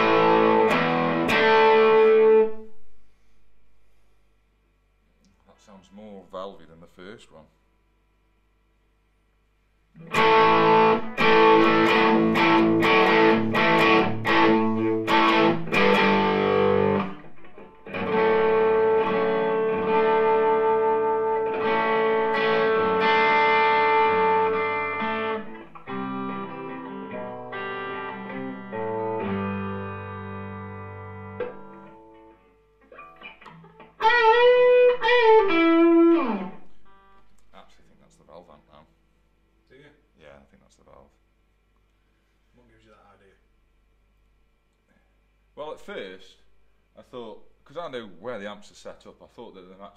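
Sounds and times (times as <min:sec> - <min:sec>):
overdriven electric guitar: 0:00.0 - 0:03.0, 0:10.0 - 0:37.3.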